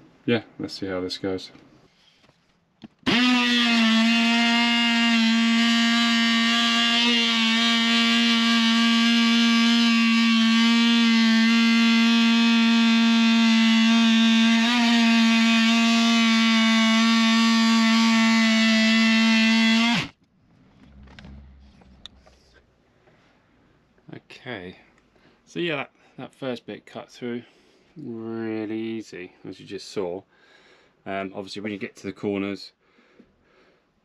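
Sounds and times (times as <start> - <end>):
oscillating multi-tool buzzing: 3.0 - 20.2.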